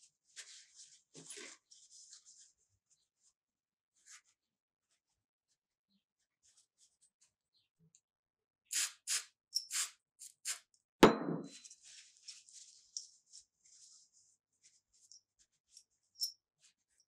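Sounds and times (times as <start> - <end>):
aerosol spray can hissing: 8.7 - 10.6
metallic clank with ringing: 11.0 - 11.6.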